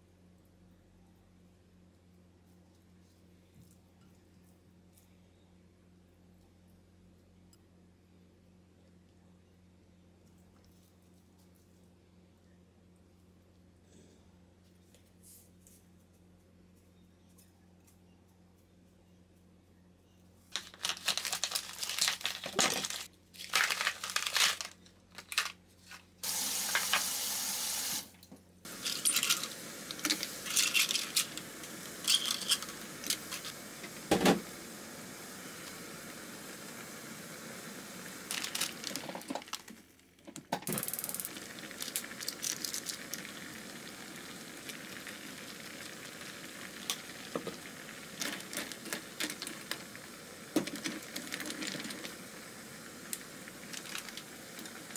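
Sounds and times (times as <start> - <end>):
steady hiss: 26.2 - 39.7, 40.7 - 54.9
tap running: 28.7 - 36.5, 46.7 - 52.3
dishes and utensils clinking: 28.8 - 31.3, 32.0 - 33.2.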